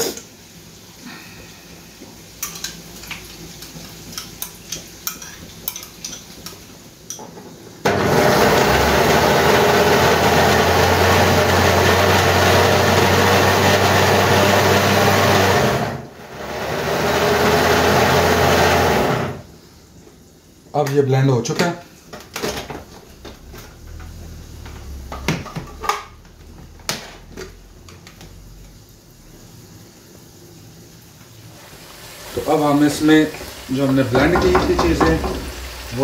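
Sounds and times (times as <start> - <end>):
electric blender running: 7.8 - 19.5, 31.7 - 36.0.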